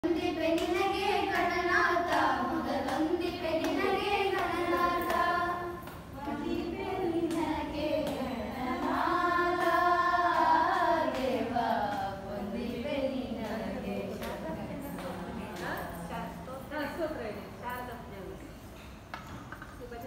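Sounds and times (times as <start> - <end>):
group of voices singing: 0.0 - 15.7.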